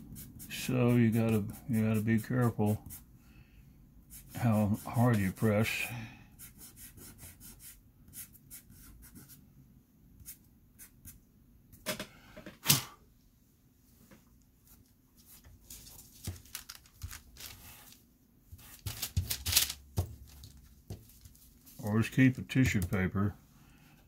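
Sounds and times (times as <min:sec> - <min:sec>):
paper and pencils rustling: 0:14.7 - 0:23.0.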